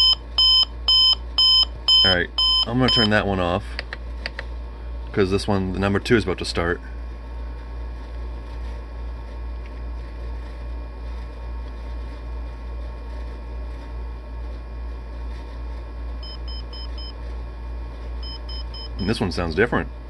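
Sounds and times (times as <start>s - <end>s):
alarm clock beeping: 0.0s - 3.1s
steady low hum: 0.0s - 20.0s.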